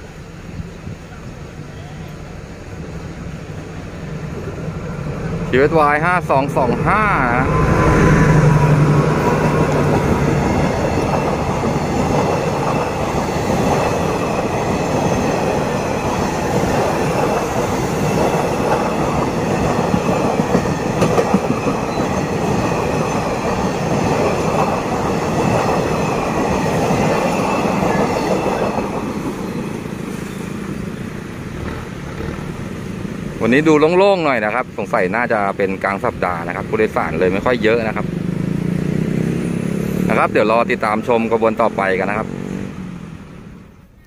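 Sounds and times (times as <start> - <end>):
locomotive passing: 0.0 - 44.0
train wheels rolling on rails: 2.4 - 33.9.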